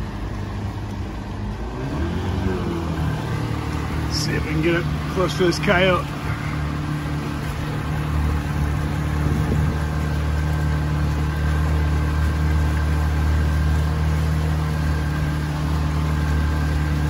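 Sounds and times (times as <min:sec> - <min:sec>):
outboard motor idling: 0:00.0 - 0:17.0.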